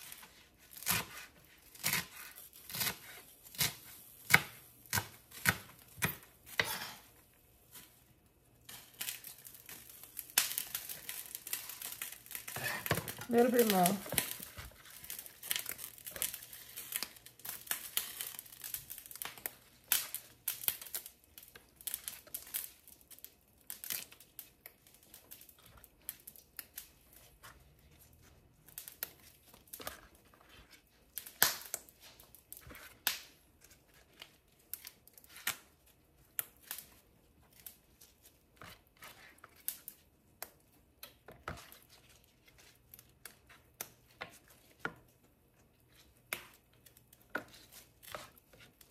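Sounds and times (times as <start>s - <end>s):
knife cutting leaves: 0.0s - 7.0s.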